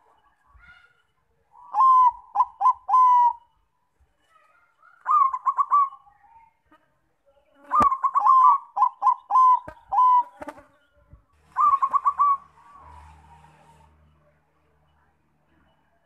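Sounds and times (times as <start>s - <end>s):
dove cooing: 1.6s - 3.5s, 5.0s - 6.1s, 7.7s - 10.6s, 11.4s - 13.9s.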